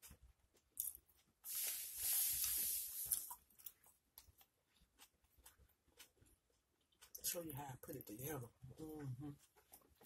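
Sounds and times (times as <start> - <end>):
chewing sandwich: 0.0 - 7.4
loud hiss: 1.5 - 3.2.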